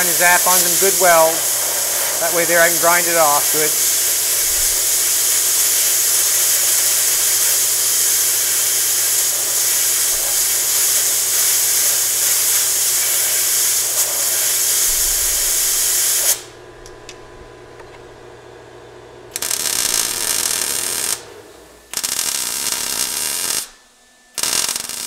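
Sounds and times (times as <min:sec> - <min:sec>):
compressed air blow gun hissing: 0:00.0 - 0:16.5.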